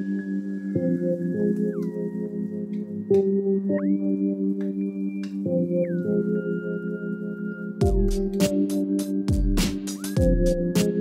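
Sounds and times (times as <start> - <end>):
soft ambient music: 0.0 - 11.0.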